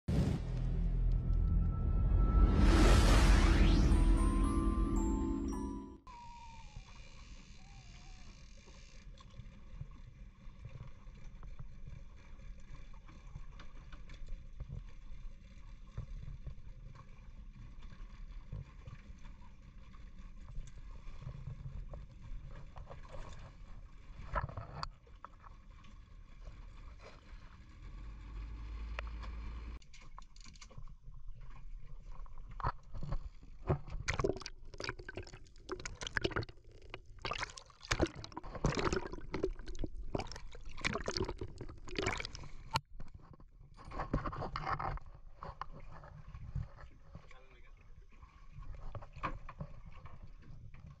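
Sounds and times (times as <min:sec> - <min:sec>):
wind and water against hull: 0:06.1 - 0:51.0
water splashing and gurgling: 0:30.5 - 0:42.9.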